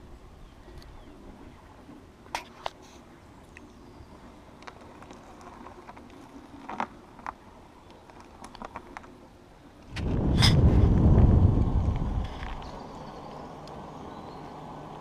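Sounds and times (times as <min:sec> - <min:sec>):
twigs ticking and crackling: 0:04.5 - 0:09.2, 0:09.9 - 0:13.9
loud low rumble: 0:09.9 - 0:13.3.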